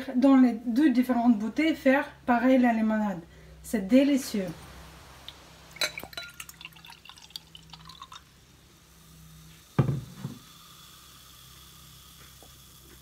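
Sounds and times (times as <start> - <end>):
bubbles crackling and popping: 4.6 - 8.4
liquid pouring into glass: 4.6 - 13.0.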